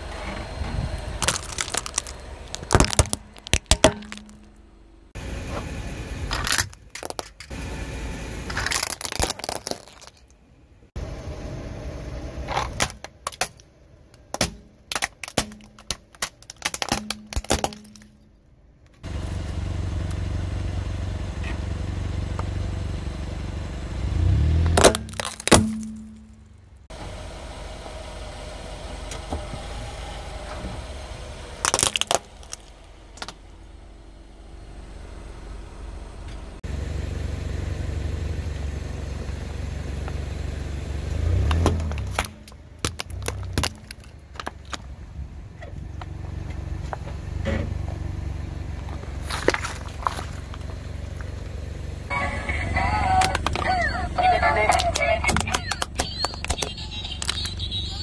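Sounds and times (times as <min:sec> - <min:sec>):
car engine rumbling: 0:00.0 - 0:58.0
plastic toys cracking: 0:01.2 - 0:04.6, 0:06.4 - 0:07.5, 0:08.5 - 0:10.4, 0:14.2 - 0:18.2, 0:24.7 - 0:26.0, 0:31.6 - 0:33.4, 0:41.8 - 0:44.9, 0:53.2 - 0:53.7, 0:54.6 - 0:58.0.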